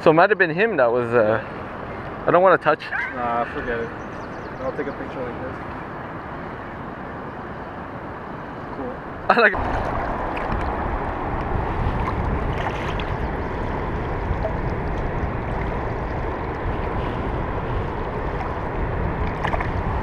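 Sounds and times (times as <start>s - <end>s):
wind buffeting microphone: 0.5s - 20.0s
shallow water lapping: 9.6s - 20.0s.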